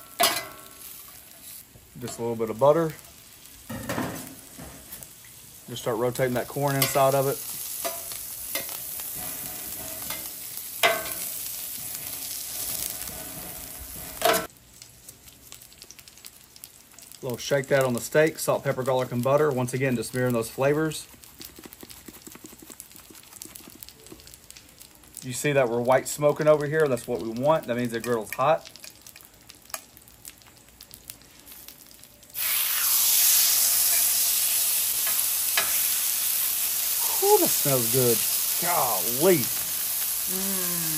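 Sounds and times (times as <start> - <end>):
butter sizzling on griddle: 0.0 - 40.9
faint crackles: 11.3 - 33.6.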